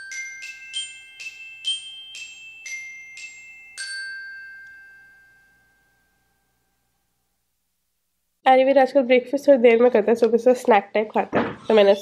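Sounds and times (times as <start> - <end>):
glockenspiel-like jingle: 0.0 - 6.9.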